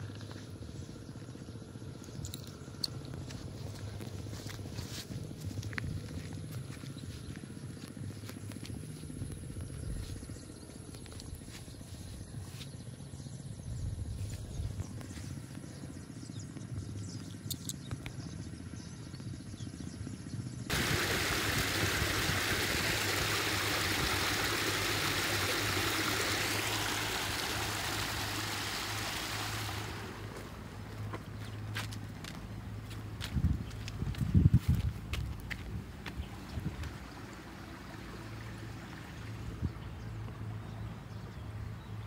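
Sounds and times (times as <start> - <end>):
water gushing from pipe: 20.7 - 30.9, 36.4 - 39.6.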